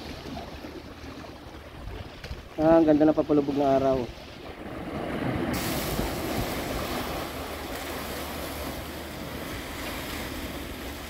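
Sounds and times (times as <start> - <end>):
waves splashing against rocks: 0.0 - 11.0
wind on microphone: 4.0 - 11.0.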